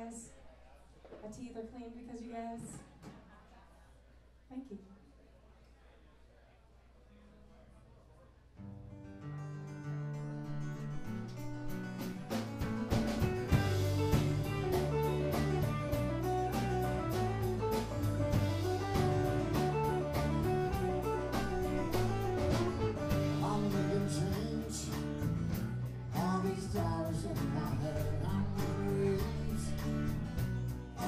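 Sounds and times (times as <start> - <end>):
live band playing: 11.0 - 31.0.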